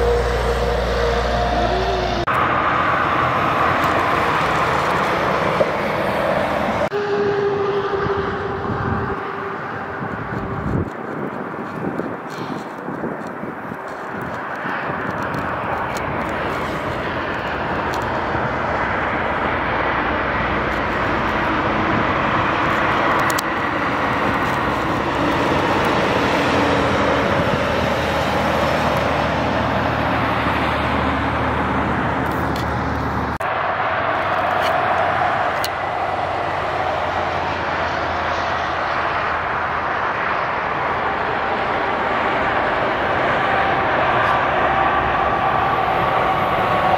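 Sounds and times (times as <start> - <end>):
truck engine drone: 0.0 - 46.9
tyre noise of passing vehicles: 0.0 - 46.9.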